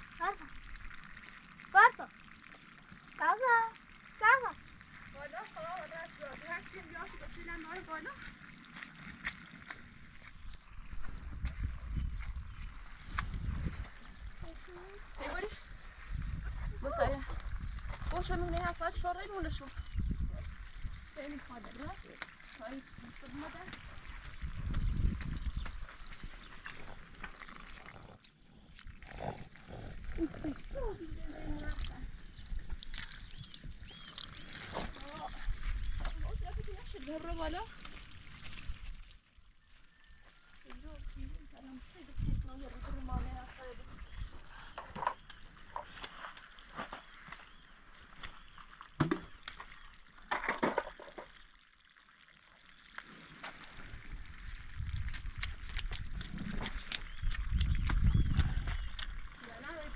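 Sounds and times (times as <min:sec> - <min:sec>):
water trickling and dripping: 0:00.0 - 0:59.9
water scooped and splashed out: 0:48.6 - 0:59.9.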